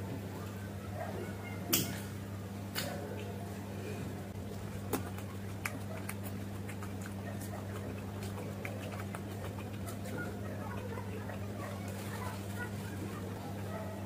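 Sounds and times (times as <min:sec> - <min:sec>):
wet chewing mouth clicks: 0:04.4 - 0:12.6.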